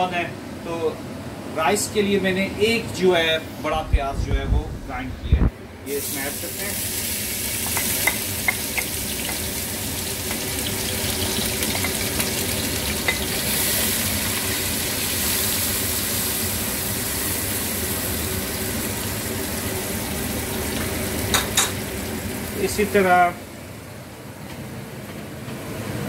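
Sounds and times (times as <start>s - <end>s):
onion sizzling in hot oil: 5.9s - 23.0s.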